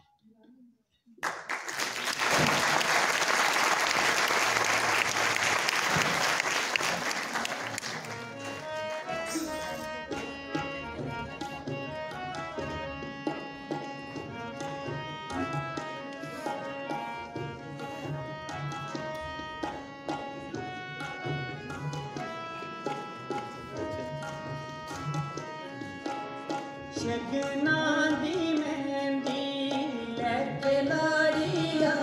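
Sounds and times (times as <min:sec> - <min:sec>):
audience applauding: 0:01.2 - 0:09.4
tabla drumming: 0:03.8 - 0:32.0
instrumental music with held melody: 0:07.8 - 0:32.0.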